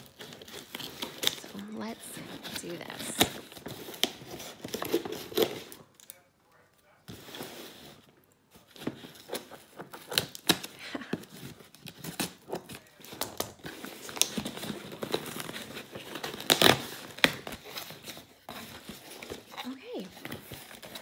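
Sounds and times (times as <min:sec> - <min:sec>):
cardboard box being torn open: 0:08.9 - 0:19.5.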